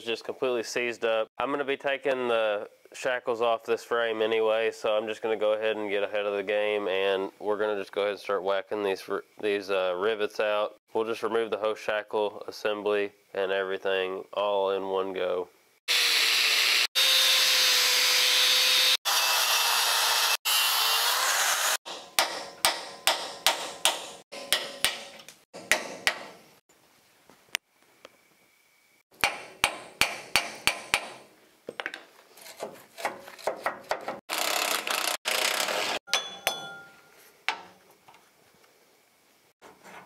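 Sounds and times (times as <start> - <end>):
power tool working metal: 15.9 - 21.8, 34.3 - 36.0
hammer striking steel: 21.9 - 26.4, 29.2 - 31.2, 36.1 - 37.1.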